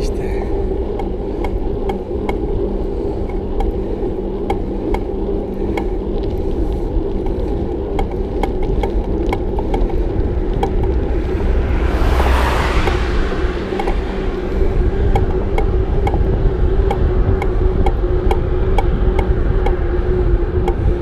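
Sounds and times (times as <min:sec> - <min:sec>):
bicycle tyres and wind rumbling: 0:00.0 - 0:21.0
rushing noise: 0:10.1 - 0:16.0.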